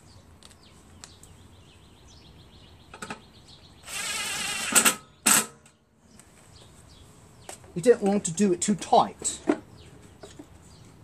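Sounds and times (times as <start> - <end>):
cordless drill driving a bolt: 3.8 - 5.0.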